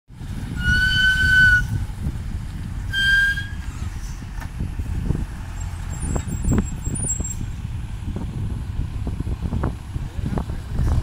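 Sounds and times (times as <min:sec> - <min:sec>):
diesel truck engine rumbling: 0:00.1 - 0:11.0
high whistle tones: 0:00.6 - 0:01.8, 0:02.9 - 0:03.9.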